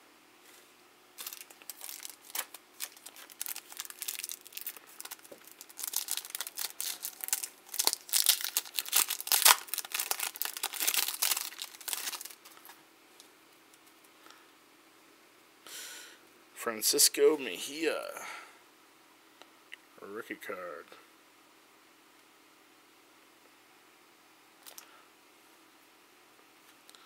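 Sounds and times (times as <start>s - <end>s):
foil wrapper crinkling and tearing: 1.2s - 12.8s.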